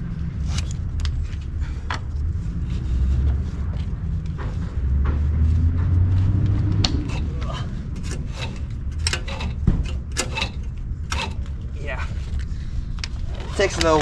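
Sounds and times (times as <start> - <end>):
steady low rumble: 0.0 - 14.0
metal strap hardware rattling: 6.9 - 12.5.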